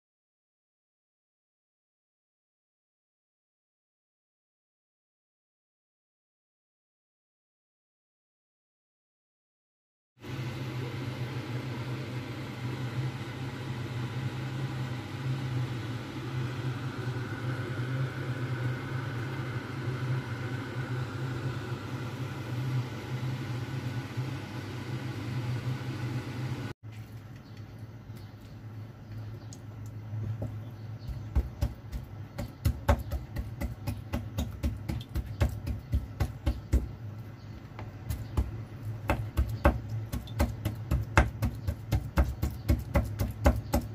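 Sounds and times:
low electrical hum: 10.2 - 43.9.

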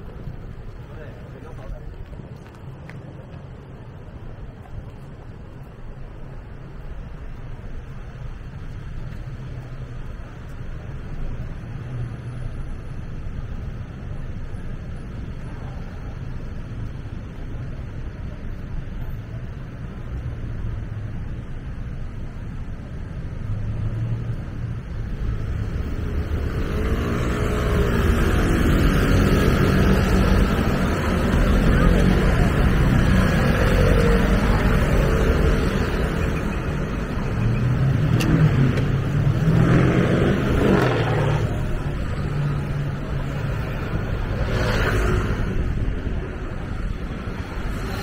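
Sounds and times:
vehicles passing close by: 0.0 - 48.0
engines accelerating: 23.4 - 48.0.

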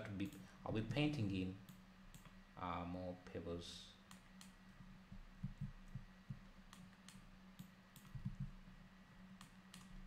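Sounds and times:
low steady hum: 0.0 - 10.0
computer mouse clicks: 1.7 - 2.4, 6.7 - 8.6, 9.4 - 10.0.

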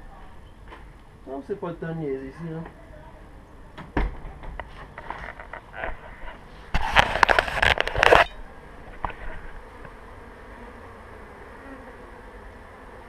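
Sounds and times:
rustling and knocking: 3.8 - 9.6
bees buzzing: 5.5 - 13.0.

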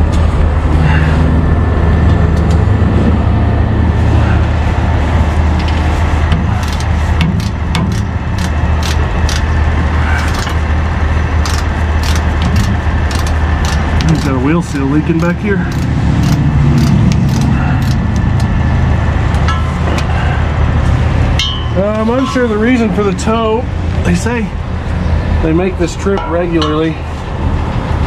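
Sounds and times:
truck engine idling: 0.0 - 28.0.

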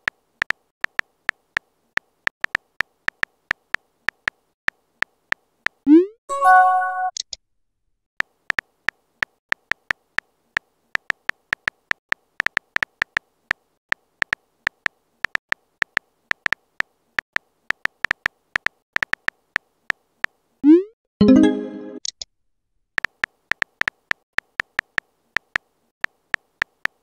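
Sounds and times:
phone keyboard typing clicks: 23.0 - 27.0.

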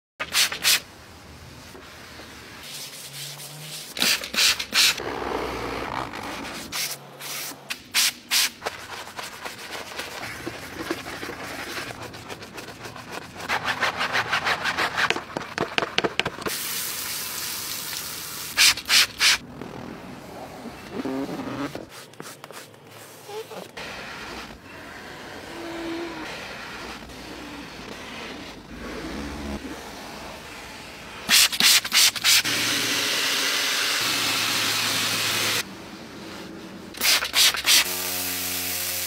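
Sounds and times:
brushes scrubbing car surfaces: 2.6 - 5.0, 6.4 - 16.7, 21.0 - 24.6.

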